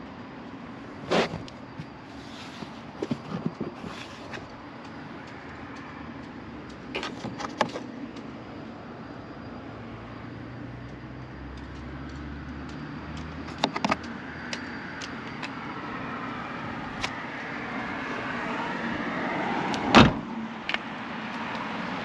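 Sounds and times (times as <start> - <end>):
car tailgate shutting thump: 19.9 - 20.3.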